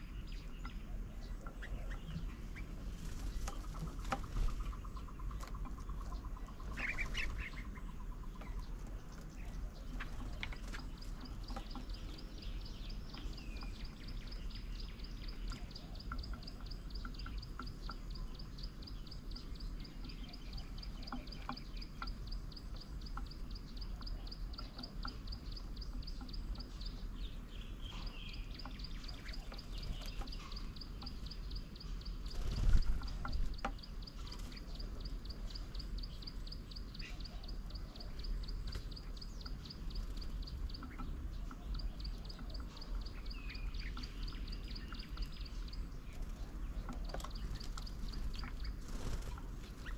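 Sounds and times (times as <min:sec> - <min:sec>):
small birds chirping: 0:00.0 - 0:49.9.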